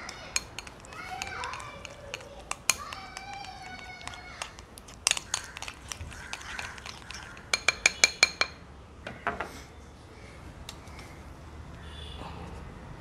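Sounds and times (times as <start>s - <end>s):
spoon clinking on glass: 0.0s - 8.6s
spoon scraping glass bowl: 0.0s - 8.6s.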